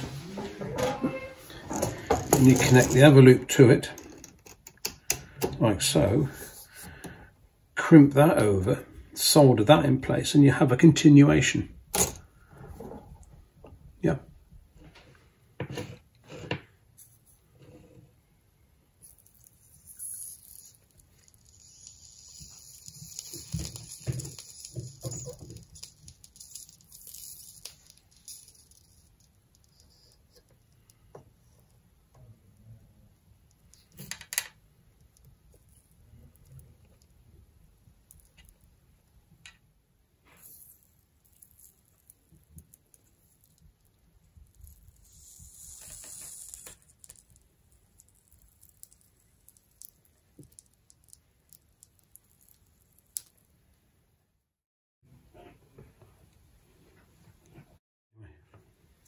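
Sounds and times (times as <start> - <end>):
solder melting hiss: 19.4 - 28.9, 44.6 - 47.2.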